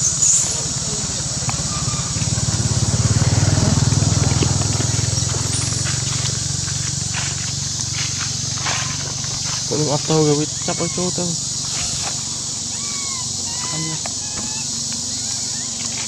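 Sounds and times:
steady high hiss: 0.0 - 3.8
small engine idling: 0.0 - 16.0.

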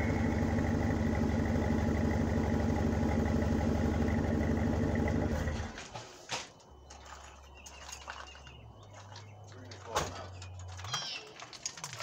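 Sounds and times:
car engine idling: 0.0 - 5.8.

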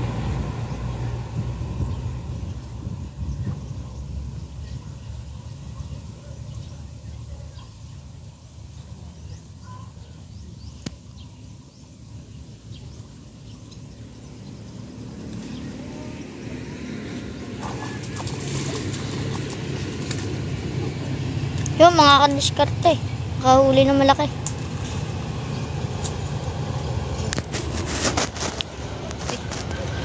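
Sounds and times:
wind rumble on microphone: 0.0 - 6.2
fish splashing in water: 17.5 - 20.7.

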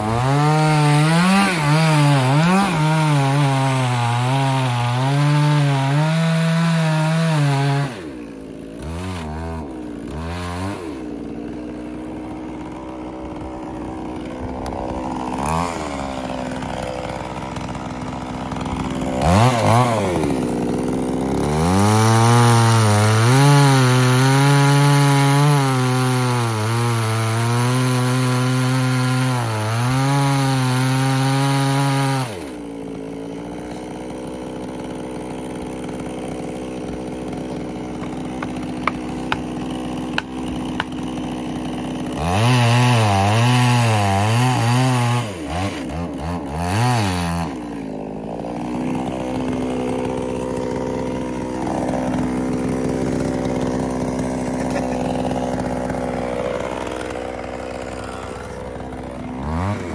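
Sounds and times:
chainsaw cutting wood: 0.0 - 59.9
sharp knocks: 38.0 - 39.5.

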